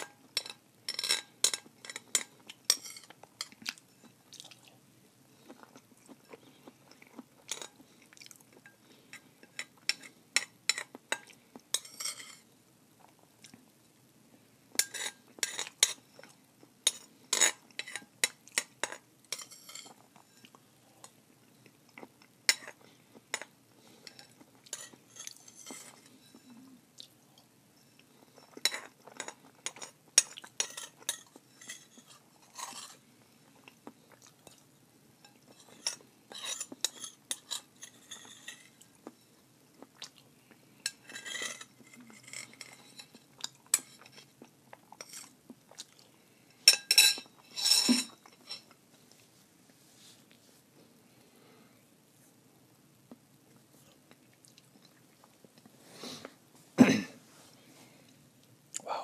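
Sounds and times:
utensil clinking against a bowl: 0:00.0 - 0:03.6, 0:14.8 - 0:16.0, 0:16.8 - 0:20.5.

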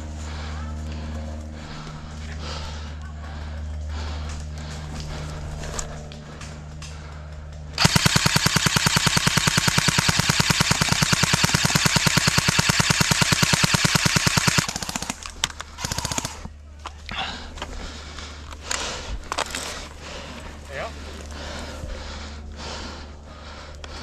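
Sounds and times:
airsoft gun full-auto bursts: 0:07.8 - 0:16.5.

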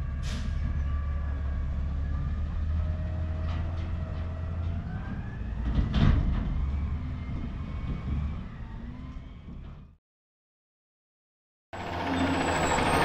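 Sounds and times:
garbage truck engine humming: 0:11.8 - 0:13.0.

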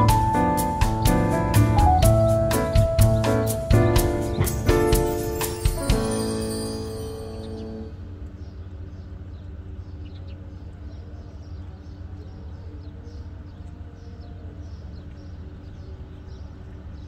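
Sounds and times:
steady low rumble: 0:00.0 - 0:12.2
small birds chirping: 0:00.0 - 0:17.0.

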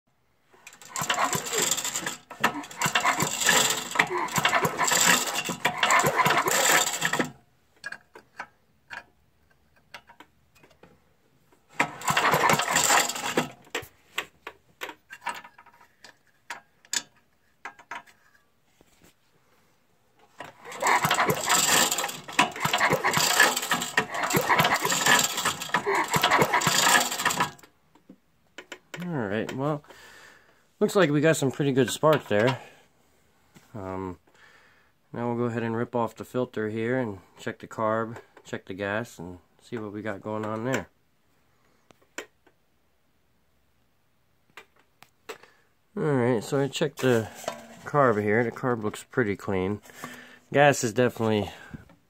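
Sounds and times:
engine cranking on pull-starter: 0:00.6 - 0:09.1, 0:11.6 - 0:15.8, 0:20.3 - 0:27.8, 0:47.0 - 0:48.4, 0:49.8 - 0:51.9.

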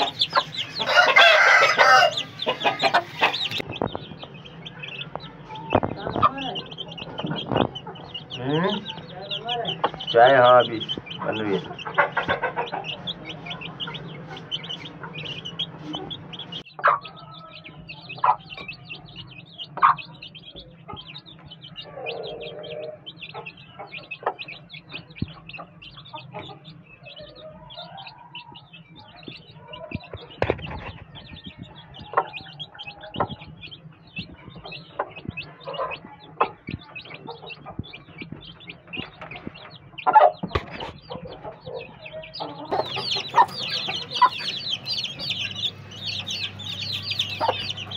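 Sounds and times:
chicks peeping: 0:00.0 - 0:47.9
hen clucking: 0:00.0 - 0:47.9.

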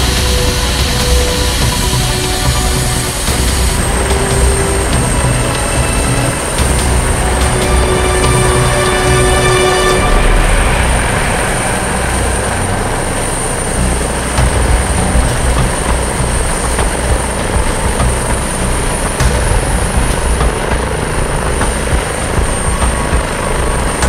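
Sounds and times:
helicopter rotor and engine noise: 0:00.0 - 0:24.0
helicopter turbine whine: 0:00.0 - 0:24.0.

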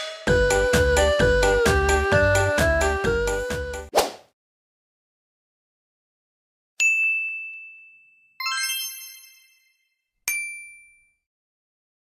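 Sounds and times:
ding: 0:06.8 - 0:11.3
multi-note chime: 0:07.4 - 0:11.1.

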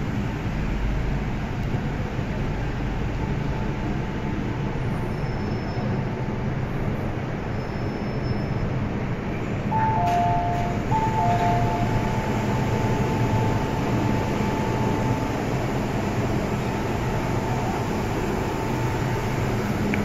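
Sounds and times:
train rumble and hum: 0:00.0 - 0:20.0
two-tone chime: 0:09.8 - 0:15.0.

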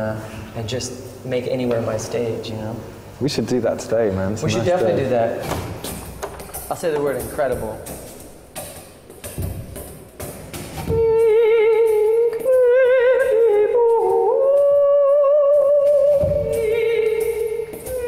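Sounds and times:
soft thumps: 0:05.4 - 0:11.2
man singing with vibrato: 0:10.9 - 0:18.0.

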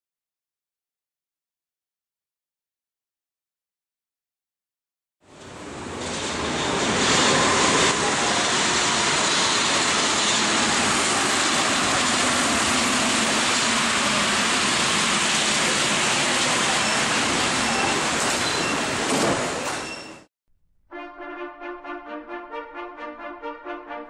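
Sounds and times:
subway train running: 0:05.3 - 0:20.3.

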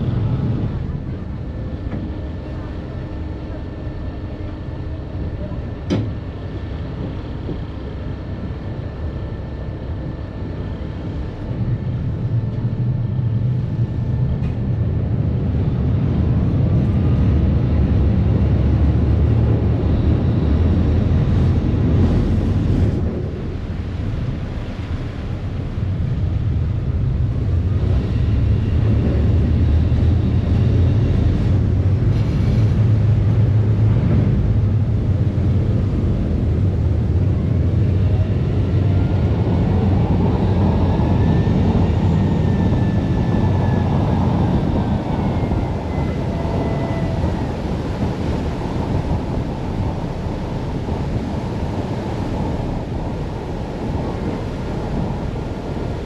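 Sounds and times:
ferry engine drone: 0:00.0 - 0:56.0
water rushing in wake: 0:15.2 - 0:56.0.

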